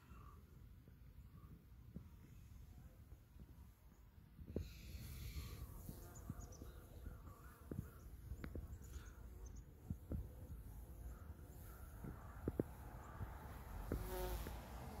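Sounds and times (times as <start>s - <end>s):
low wind rumble: 0.0s - 15.0s
bees buzzing faintly: 4.4s - 15.0s.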